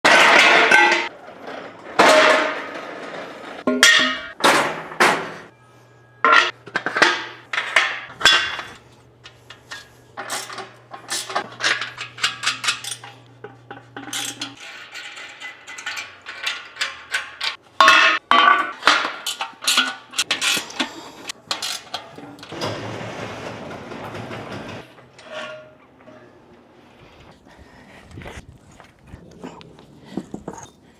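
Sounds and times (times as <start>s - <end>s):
metal rails clanking on concrete: 0.1s - 4.7s, 6.2s - 26.4s.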